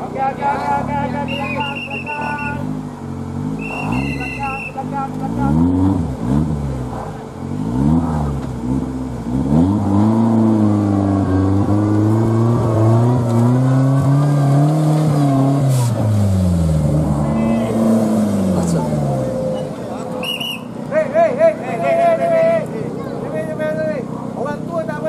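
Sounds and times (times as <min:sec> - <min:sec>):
off-road engine revving: 0:00.0 - 0:25.0.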